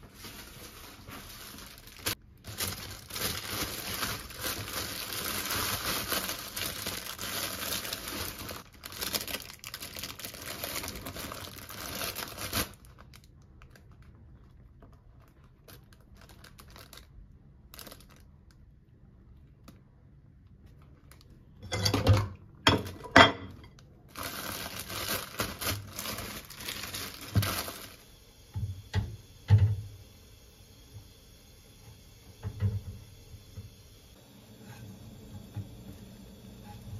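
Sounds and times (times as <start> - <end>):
plastic bag crinkling: 0.0 - 19.8, 22.6 - 28.2.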